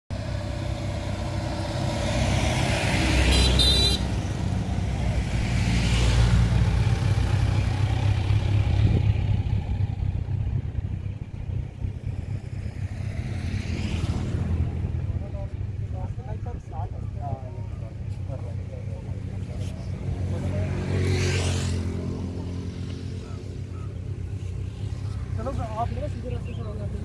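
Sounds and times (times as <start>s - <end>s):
vehicles passing: 0.1s - 27.0s
car horn toot: 3.2s - 4.2s.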